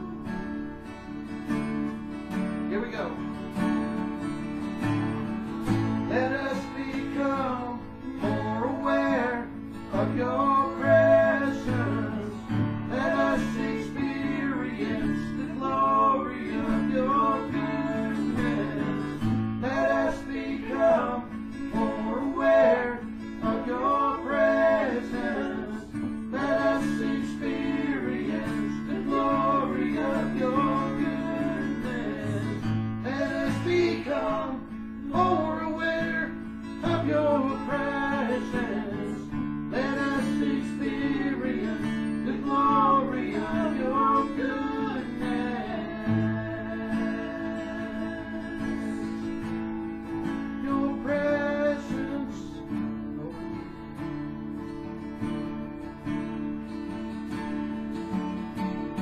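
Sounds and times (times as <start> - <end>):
acoustic guitars strumming: 0.0 - 59.0
men singing in harmony: 6.1 - 52.7.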